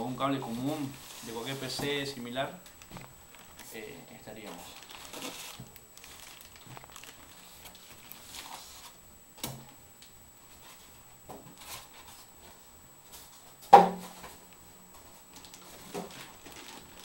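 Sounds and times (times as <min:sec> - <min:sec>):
plastic bag rustling: 0:00.3 - 0:02.0, 0:02.6 - 0:09.0, 0:15.0 - 0:17.0.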